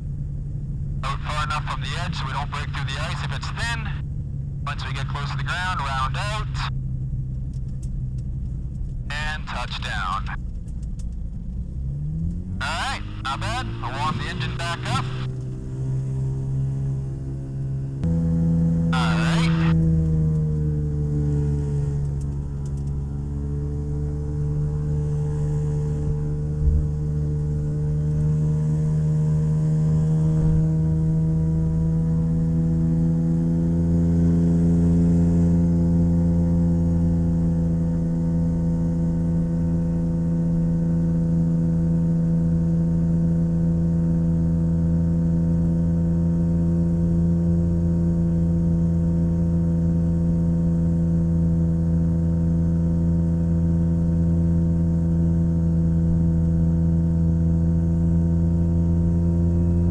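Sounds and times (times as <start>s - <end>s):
aircraft engine through intercom: 1.0s - 4.0s, 4.7s - 6.8s, 9.1s - 10.4s, 12.6s - 15.3s, 18.9s - 19.8s.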